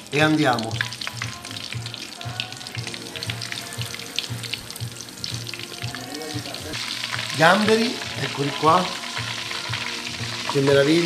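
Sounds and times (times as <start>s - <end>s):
shrimp frying in hot oil: 0.0s - 11.0s.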